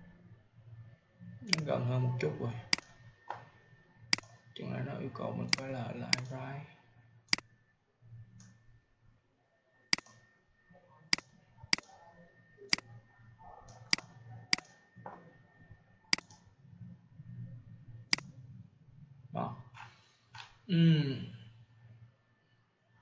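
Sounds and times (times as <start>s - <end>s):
faint low hum: 0.0s - 23.0s
mouse button clicks: 16.2s - 16.4s.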